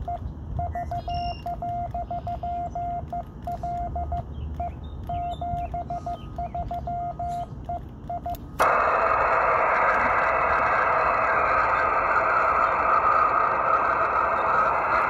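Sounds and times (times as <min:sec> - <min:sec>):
morse code tone: 0:00.0 - 0:07.5
receiver hiss: 0:08.3 - 0:15.0.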